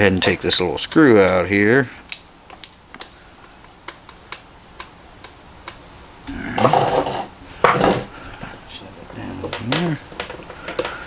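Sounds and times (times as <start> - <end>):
plastic parts clattering: 6.6 - 8.1, 9.1 - 11.0.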